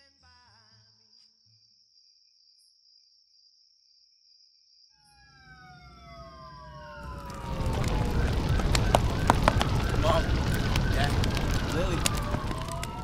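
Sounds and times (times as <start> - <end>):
low rumble: 5.9 - 13.0
crickets trilling: 7.0 - 13.0.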